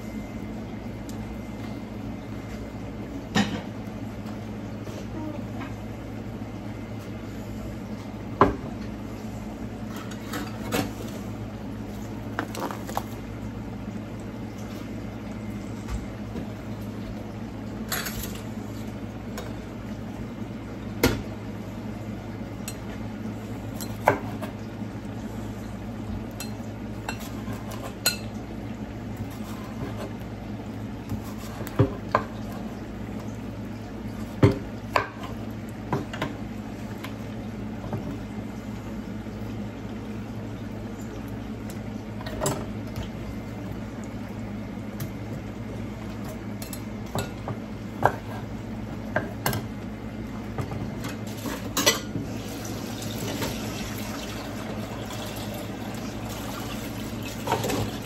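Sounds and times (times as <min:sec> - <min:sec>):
steady low hum: 0:00.0 - 0:58.0
utensils and dishes clinking: 0:51.0 - 0:52.2.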